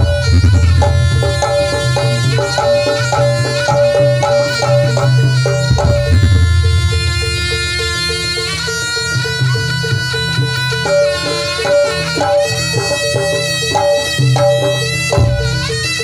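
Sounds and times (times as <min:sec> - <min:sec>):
low drum strokes: 0:00.0 - 0:02.7, 0:05.6 - 0:08.2
pitched percussion beat: 0:00.0 - 0:16.0
reedy shawm melody: 0:00.0 - 0:16.0.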